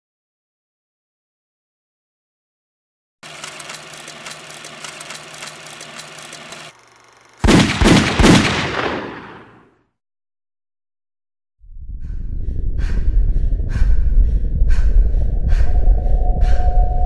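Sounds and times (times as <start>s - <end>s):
low hum: 11.6s - 17.0s.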